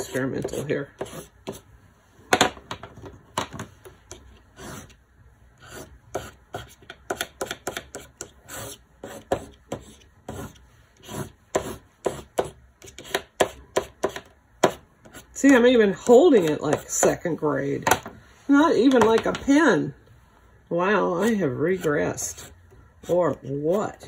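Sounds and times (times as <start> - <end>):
crayon scratching on paper: 0.0 - 1.7, 4.1 - 5.0, 5.6 - 17.1, 21.1 - 24.0.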